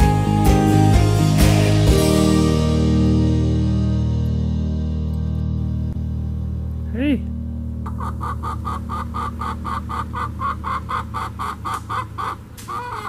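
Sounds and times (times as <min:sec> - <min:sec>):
background music: 0:00.0 - 0:11.7
hen clucking: 0:07.8 - 0:13.0
hen call: 0:07.9 - 0:13.0.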